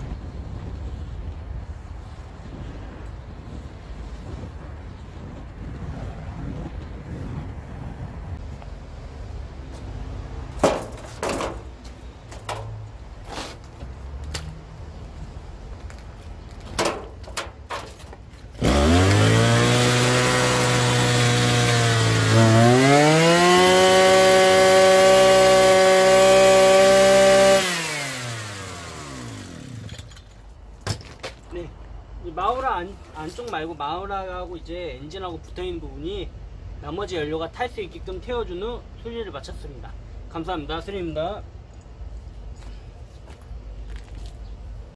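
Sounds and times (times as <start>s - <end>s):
brush cutter engine revving: 18.6s - 29.9s.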